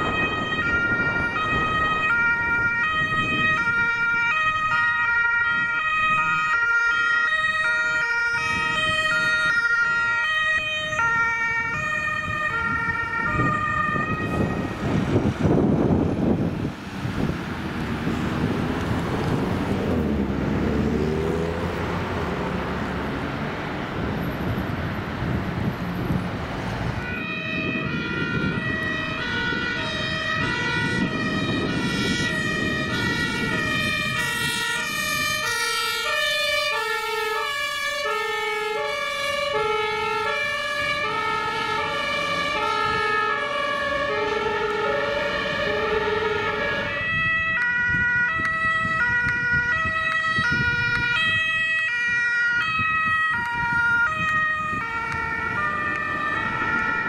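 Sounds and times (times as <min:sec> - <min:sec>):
engine and road noise: 0:00.0 - 0:57.0
two-tone emergency siren: 0:00.0 - 0:57.0.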